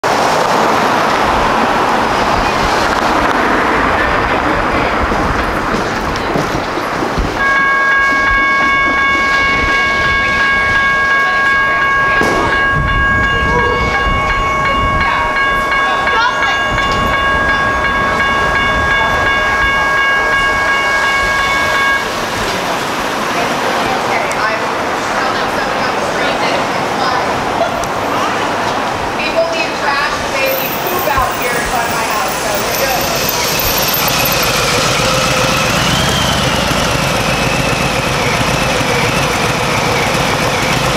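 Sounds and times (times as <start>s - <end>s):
road traffic rushing past: 0.0s - 40.9s
train wheels rumbling: 0.0s - 40.9s
high-pitched multi-tone whine: 30.5s - 40.9s.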